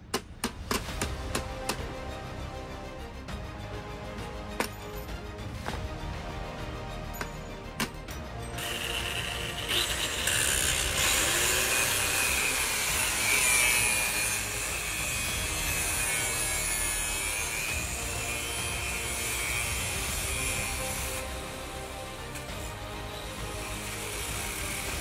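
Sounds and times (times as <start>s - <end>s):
angle grinder cutting steel: 7.2s - 25.0s.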